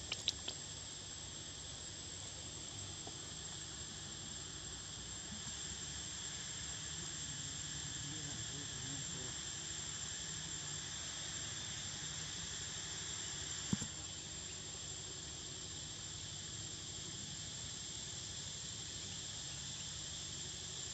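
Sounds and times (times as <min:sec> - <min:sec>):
sharp click: 0:00.0 - 0:00.6
insects chirring: 0:00.0 - 0:20.9.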